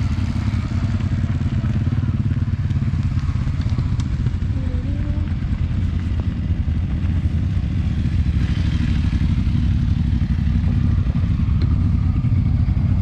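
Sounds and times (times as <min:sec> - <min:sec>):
motorcycle engines rumbling: 0:00.0 - 0:13.0.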